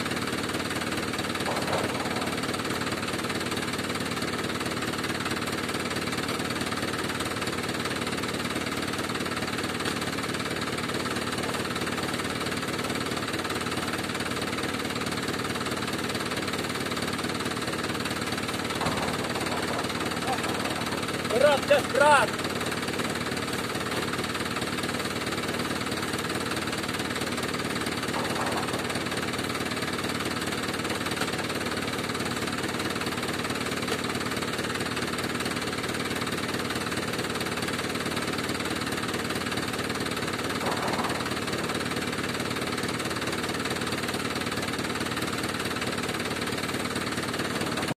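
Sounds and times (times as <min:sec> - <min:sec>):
tractor engine idling: 0:00.0 - 0:47.9.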